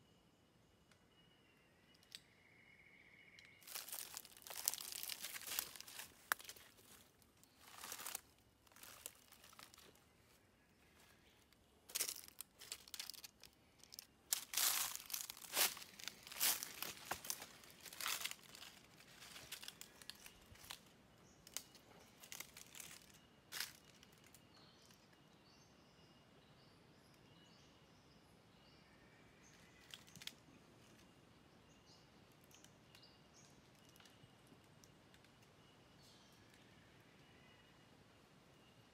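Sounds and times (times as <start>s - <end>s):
faint bird chirps: 0.0s - 38.9s
footsteps crunching through dry leaves: 3.5s - 10.0s, 11.9s - 20.9s, 22.2s - 24.0s.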